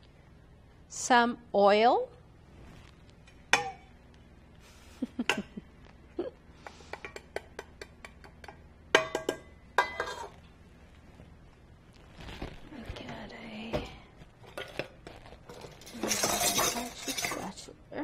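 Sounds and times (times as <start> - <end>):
bowls and utensil clinking: 7.0 - 10.4, 14.4 - 17.7.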